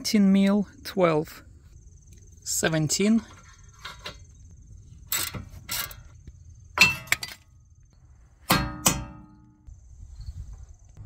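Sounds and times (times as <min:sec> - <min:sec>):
metal tools clinking: 0:03.0 - 0:04.4, 0:05.0 - 0:06.2, 0:06.8 - 0:07.6.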